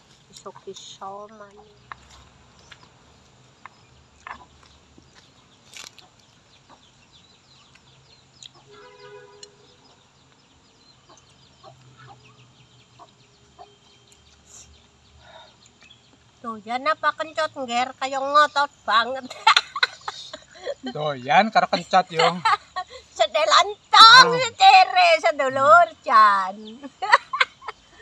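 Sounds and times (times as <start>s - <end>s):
chicken clucking: 4.2s - 4.8s.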